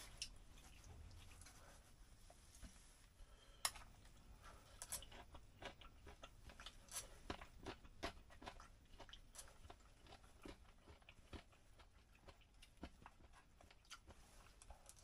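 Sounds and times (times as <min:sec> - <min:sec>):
person chewing: 0:04.6 - 0:15.0.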